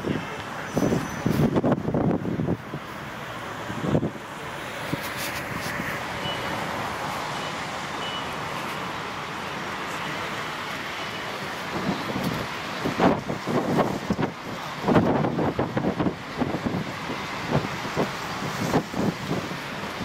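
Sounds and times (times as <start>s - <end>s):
city traffic noise: 0.0s - 20.0s
faint short high beeps: 7.4s - 8.3s.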